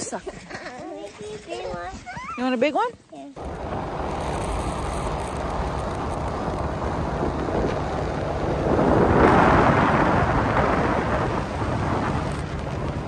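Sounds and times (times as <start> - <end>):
car road and wind rush: 3.4 - 13.0.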